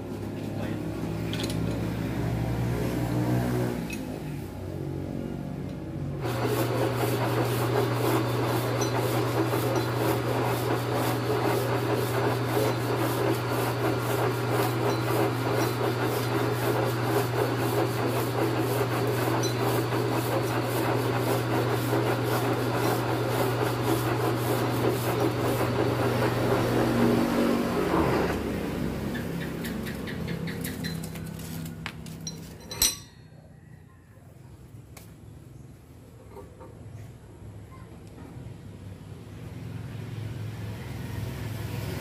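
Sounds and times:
sandpaper rubbing rasp: 6.2 - 28.4
lathe motor hum: 6.2 - 29.2.

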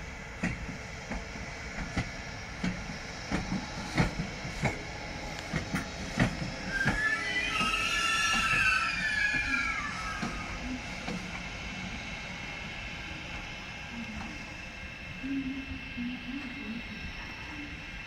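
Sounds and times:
train wheels squealing: 5.5 - 11.4.

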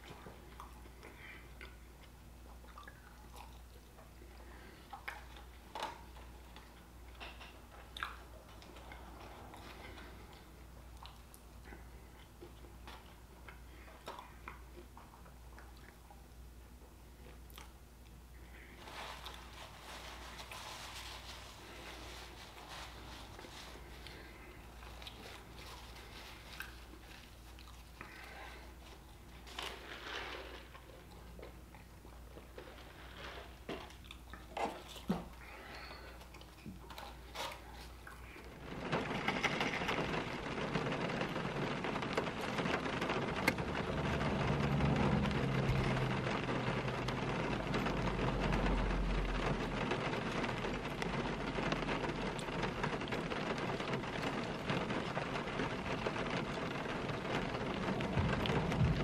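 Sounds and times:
rain on a car roof: 38.2 - 59.0.

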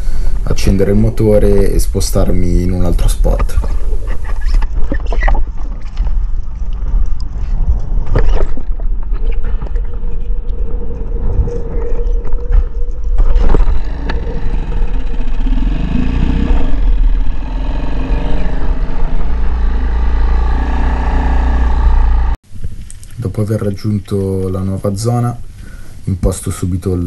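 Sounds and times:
wind noise on microphone: 0.0 - 21.0
outboard motor running: 13.3 - 22.4.

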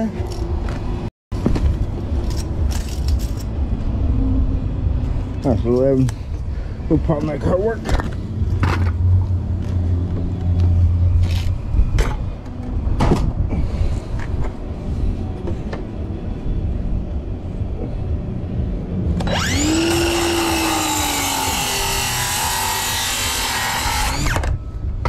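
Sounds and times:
circular saw motor whine: 19.2 - 24.6.

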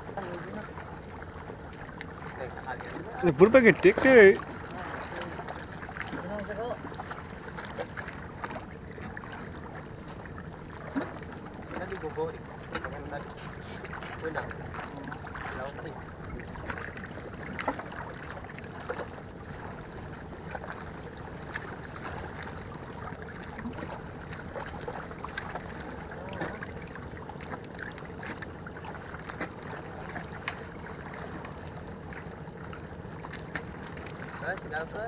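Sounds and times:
small waves splashing on concrete: 0.0 - 32.3, 33.2 - 35.0.

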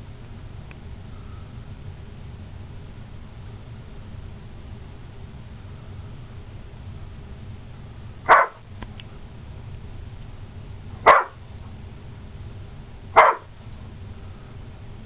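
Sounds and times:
large dog barking: 8.3 - 8.6, 11.0 - 11.4, 13.2 - 13.5.

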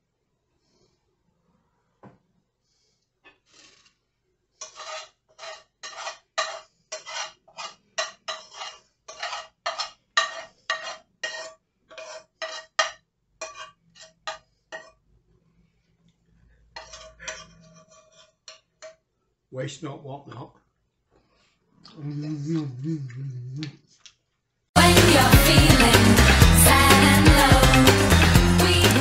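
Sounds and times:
spoon scraping metal frying pan: 4.6 - 15.0, 16.7 - 19.0.

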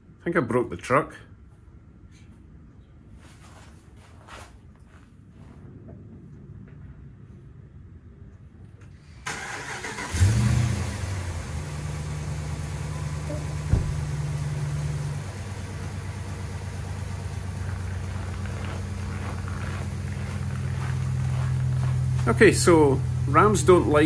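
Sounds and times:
engine starting and idling: 8.9 - 24.0.

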